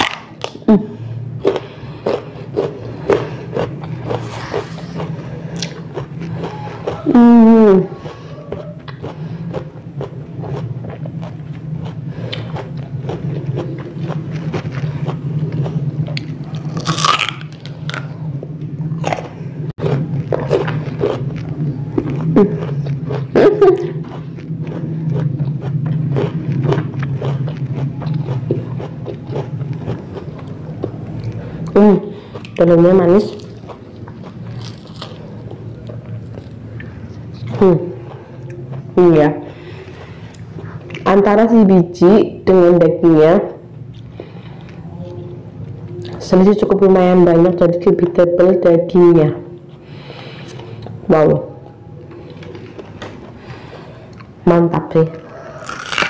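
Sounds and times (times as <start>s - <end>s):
closed-mouth hum: 0.0s - 56.0s
crisp chewing of fruit: 1.4s - 41.1s, 55.1s - 56.0s.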